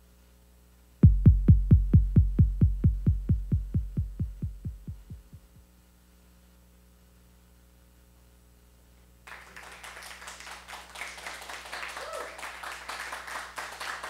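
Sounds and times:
faint low hum: 0.0s - 14.0s
synthesized bass pulse: 1.0s - 5.6s
audience clapping: 9.2s - 14.0s.

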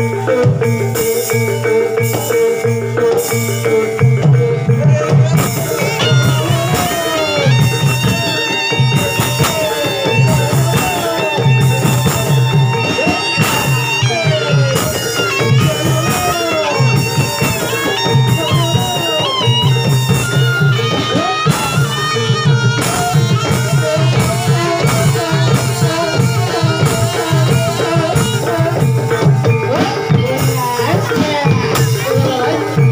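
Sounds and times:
steady drumming: 0.0s - 32.9s
gliding high melody: 3.4s - 28.6s.

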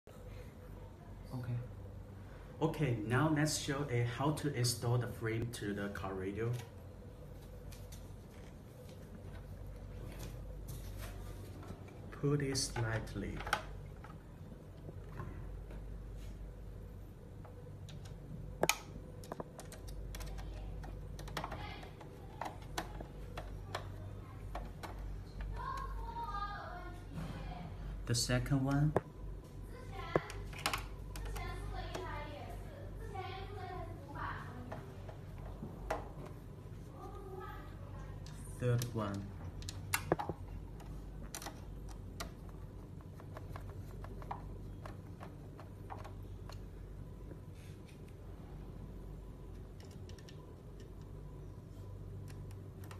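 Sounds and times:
screwdriver clicks and taps: 49.8s - 51.1s.

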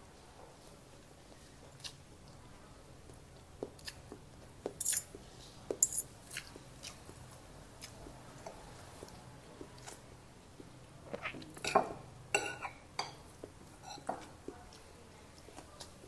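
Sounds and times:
chewing with mouth clicks: 1.3s - 2.5s, 3.1s - 5.2s, 6.2s - 11.6s.

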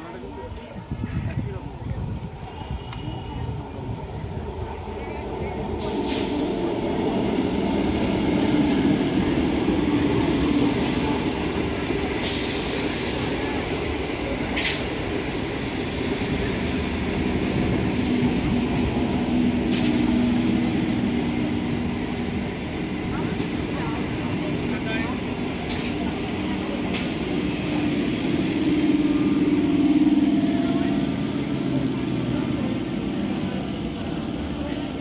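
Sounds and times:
train wheels rumbling on rails: 0.0s - 35.0s
carriages clanking: 17.1s - 35.0s.

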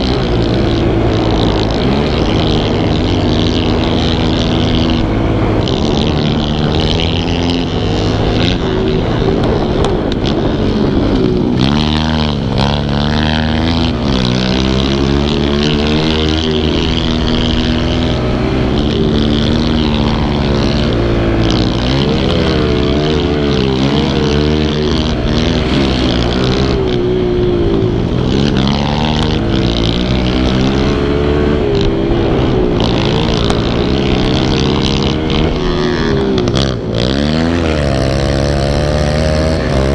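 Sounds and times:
pit bike engine revving: 0.0s - 39.9s.

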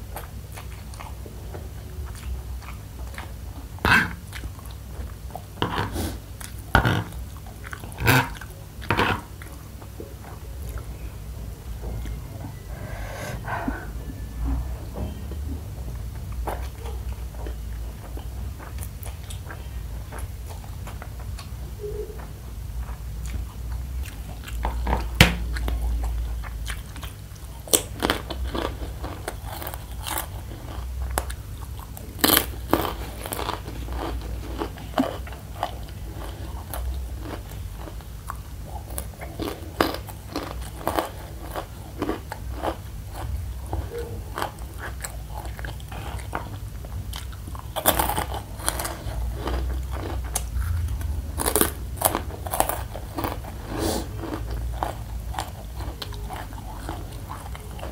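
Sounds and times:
crunchy snack chewing: 22.8s - 57.9s.

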